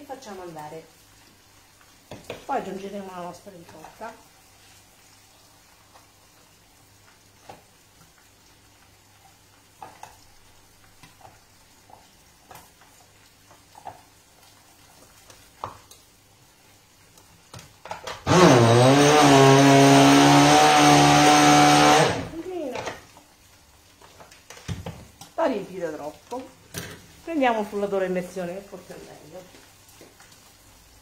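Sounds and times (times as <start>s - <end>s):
electric blender motor: 18.2s - 22.4s.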